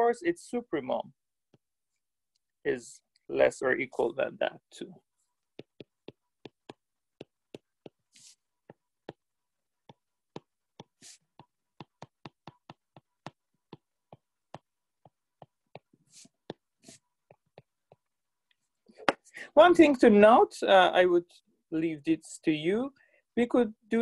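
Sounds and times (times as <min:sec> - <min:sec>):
pen tapping on writing surface: 0:05.6 - 0:16.7.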